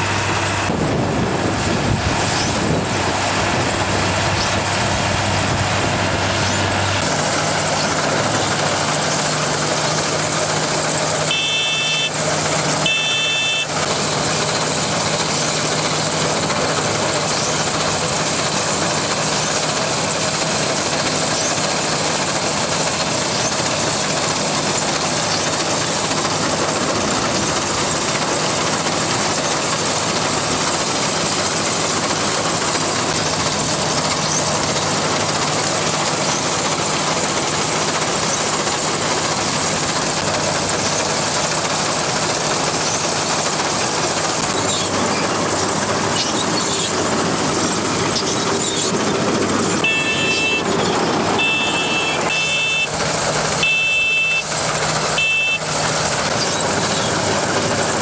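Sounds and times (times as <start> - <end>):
combine harvester running: 0.0 - 58.0
high beeping: 11.3 - 12.2, 12.8 - 13.7, 49.8 - 53.0, 53.6 - 54.5, 55.2 - 55.7.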